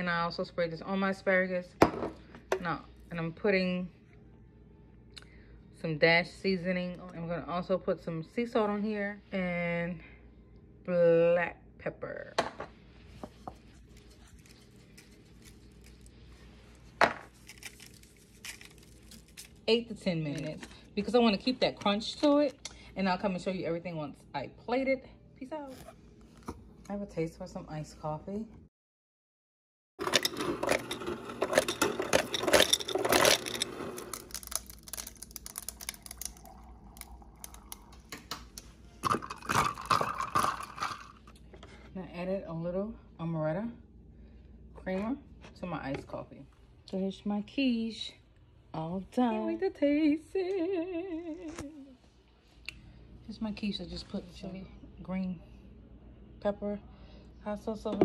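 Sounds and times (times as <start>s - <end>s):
ice clinking against glass: 30.0s - 37.9s
iced coffee pouring over ice: 30.0s - 41.3s.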